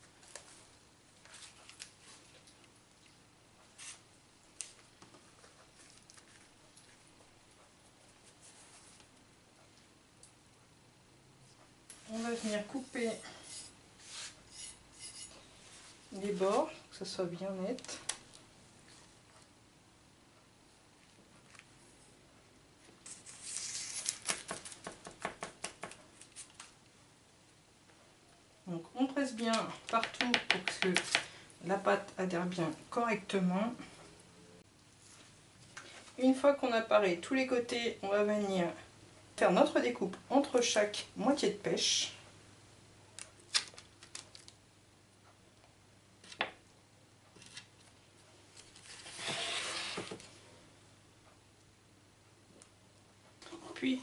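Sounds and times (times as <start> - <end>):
knife scraping rustle: 12.0 - 16.6, 23.0 - 24.4, 48.6 - 50.2
knife scraping pastry: 13.3 - 15.4.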